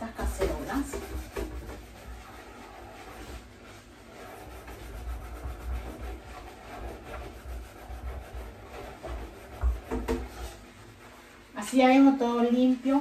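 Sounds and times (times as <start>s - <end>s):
sponge scrubbing saucepan: 0.0s - 13.0s
knocks in sink: 9.6s - 10.3s.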